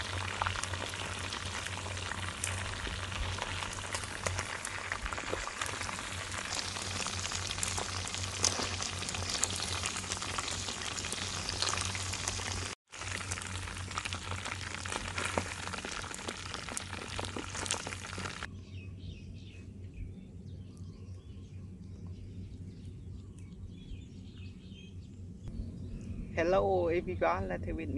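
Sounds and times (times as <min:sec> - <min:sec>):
oil crackling and sizzling: 0:00.0 - 0:18.5.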